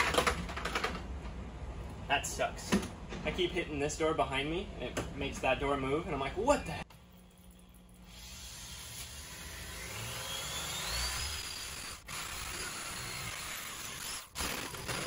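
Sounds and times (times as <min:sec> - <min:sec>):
electric drill cutting sheet metal: 0:08.1 - 0:15.0.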